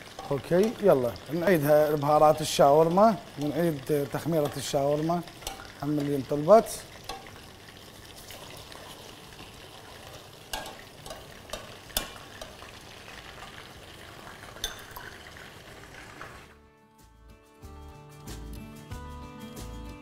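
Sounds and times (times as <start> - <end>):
food sizzling in oil: 0.0 - 16.6
spoon scraping pan: 4.2 - 6.1, 8.1 - 13.6
spoon clicking against pan: 5.4 - 6.1, 7.0 - 7.4, 10.5 - 12.7, 14.6 - 15.0
music: 16.5 - 20.0.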